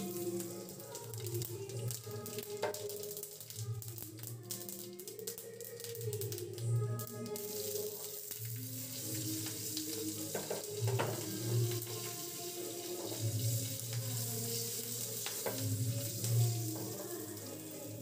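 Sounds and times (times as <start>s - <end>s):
chillies sizzling in hot oil: 0.0s - 18.0s
pan clicking on burner: 10.3s - 12.1s, 15.2s - 17.2s.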